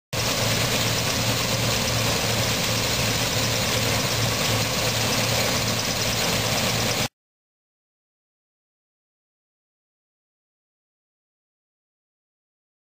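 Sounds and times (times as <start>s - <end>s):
combine harvester engine drone: 0.2s - 7.1s.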